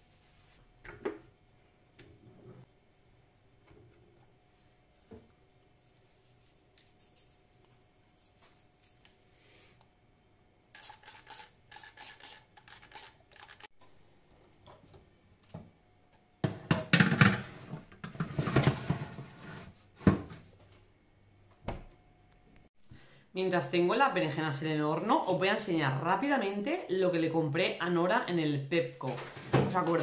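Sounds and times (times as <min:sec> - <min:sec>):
food scraping and rubbing strokes: 0:00.0 - 0:00.6, 0:05.7 - 0:09.8.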